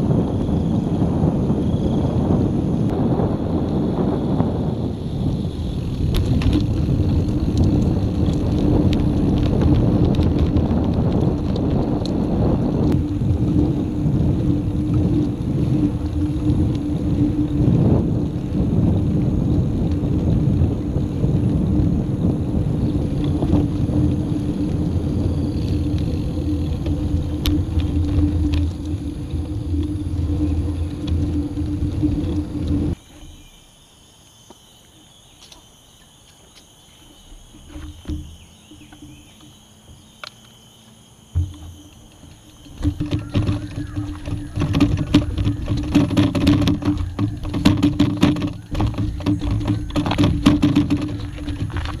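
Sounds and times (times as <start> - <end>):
wind buffeting microphone: 0.0 - 33.5, 37.0 - 40.3, 41.3 - 52.0
bicycle tyres on pavement: 0.0 - 52.0
bike clicks and rattles: 5.0 - 33.0, 41.4 - 52.0.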